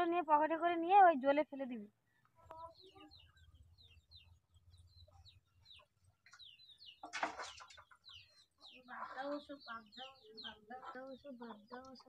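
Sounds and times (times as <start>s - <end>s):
chicks peeping: 2.5s - 12.0s.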